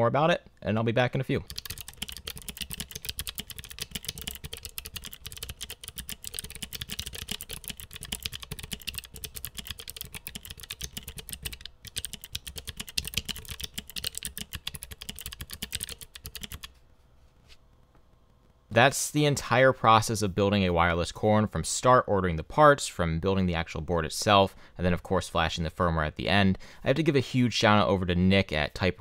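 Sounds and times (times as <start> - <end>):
fast keyboard typing clicks: 1.4 - 16.7.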